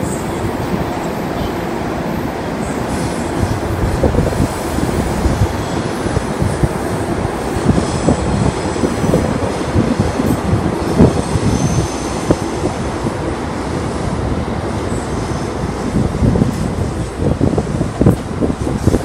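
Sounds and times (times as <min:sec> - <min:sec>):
electric train rumbling: 0:00.0 - 0:19.0
high wheel squeal: 0:11.1 - 0:12.2.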